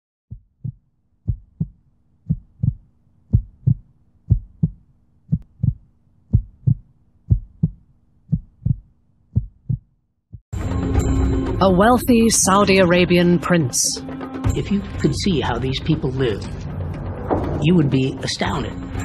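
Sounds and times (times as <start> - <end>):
heartbeat thumps: 0.3 - 10.4
faint low hum: 0.6 - 9.9.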